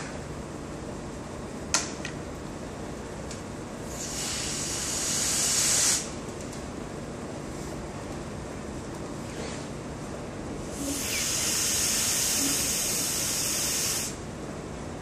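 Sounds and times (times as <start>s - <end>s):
hiss: 3.9s - 6.1s, 10.7s - 14.2s.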